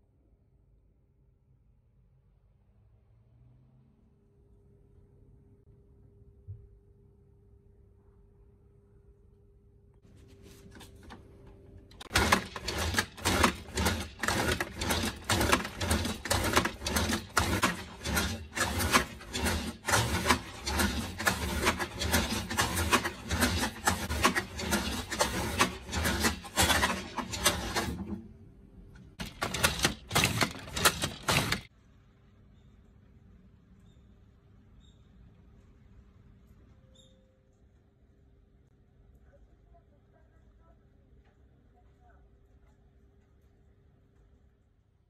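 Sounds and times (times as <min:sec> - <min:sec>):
manual slicer cutting strokes: 0:12.2 - 0:28.0.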